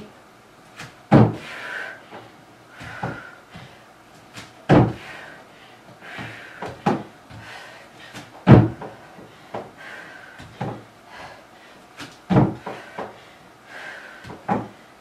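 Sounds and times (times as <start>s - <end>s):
feet thumping on wooden box: 0.8s - 1.5s, 2.1s - 5.1s, 6.0s - 9.8s, 10.4s - 10.9s, 12.0s - 13.2s, 14.2s - 14.8s
feet stepping down to floor: 2.1s - 5.1s, 6.0s - 9.7s, 10.4s - 10.8s, 12.0s - 13.2s.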